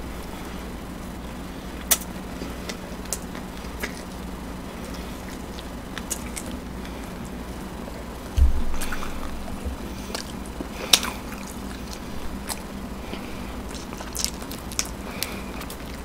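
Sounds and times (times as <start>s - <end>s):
steady low hum: 0.0s - 16.0s
wet mouth clicks and smacks: 1.9s - 2.1s.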